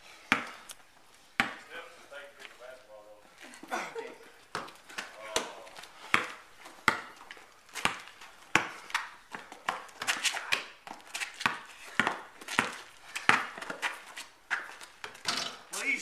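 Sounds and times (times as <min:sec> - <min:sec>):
basketball bouncing on pavement: 0:00.2 - 0:00.6, 0:01.4 - 0:01.7, 0:04.4 - 0:15.7.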